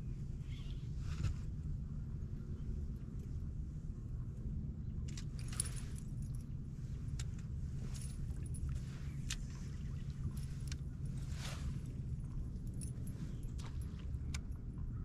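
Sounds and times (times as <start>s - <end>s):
steady low rumble: 0.0s - 15.0s
fishing tackle jangling and clicking: 5.1s - 14.6s.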